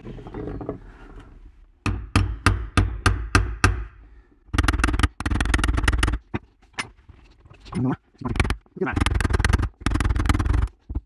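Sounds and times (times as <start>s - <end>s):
hammer tapping metal punch: 1.8s - 3.9s.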